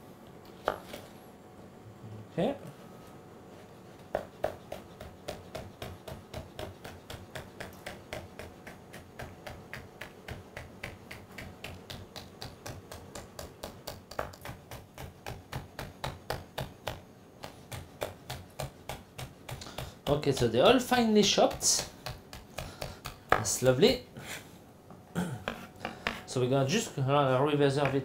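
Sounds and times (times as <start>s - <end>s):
knife chopping on a board: 4.1s - 20.5s, 21.4s - 23.6s.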